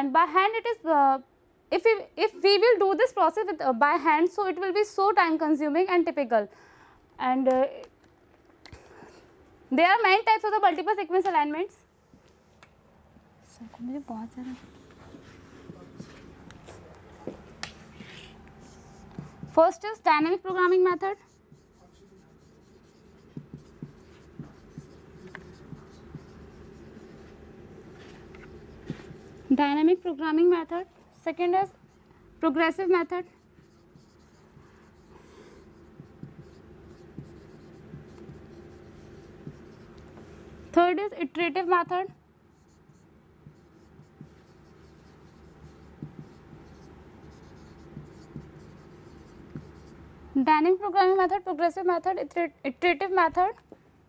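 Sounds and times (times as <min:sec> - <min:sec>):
low room hum: 0:00.0 - 0:54.0
marker writing on a whiteboard: 0:14.3 - 0:32.0, 0:32.6 - 0:40.4, 0:41.6 - 0:50.0.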